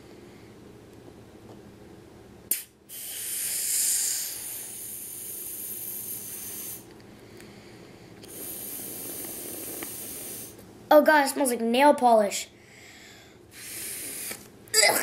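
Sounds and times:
breath blown through a straw: 2.5s - 6.9s, 8.3s - 10.6s, 13.5s - 14.5s.

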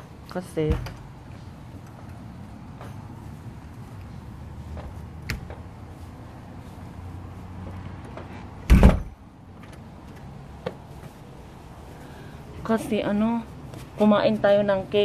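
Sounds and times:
loud thump: 8.6s - 9.2s.

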